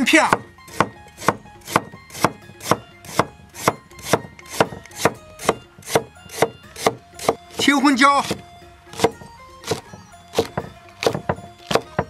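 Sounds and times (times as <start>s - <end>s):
cleaver slicing ginger: 0.2s - 12.0s.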